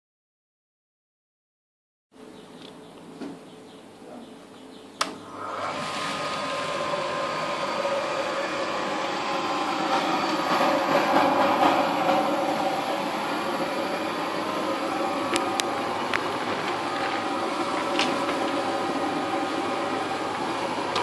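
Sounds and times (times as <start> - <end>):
electric blower running: 5.1 - 21.0.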